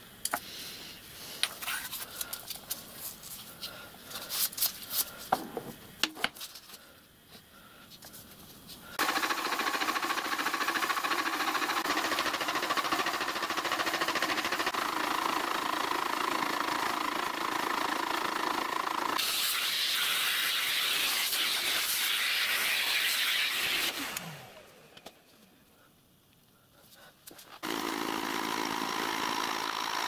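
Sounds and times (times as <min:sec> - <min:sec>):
spindle motor winding down: 0:09.0 - 0:19.2, 0:22.9 - 0:25.0, 0:27.6 - 0:30.0
bright cutting hiss: 0:19.2 - 0:24.5.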